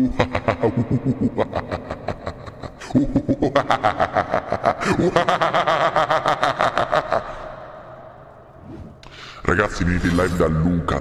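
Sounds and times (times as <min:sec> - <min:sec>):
man laughing hard: 0:00.0 - 0:07.6.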